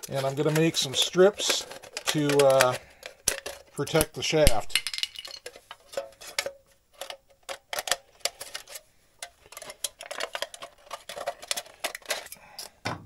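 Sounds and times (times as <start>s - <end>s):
thin metal can clicks and snips: 0.1s - 4.6s.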